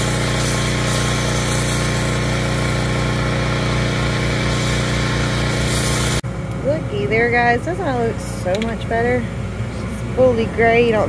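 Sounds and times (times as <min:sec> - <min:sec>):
hiss of spray: 0:00.0 - 0:06.2
pressure washer engine hum: 0:00.0 - 0:11.0.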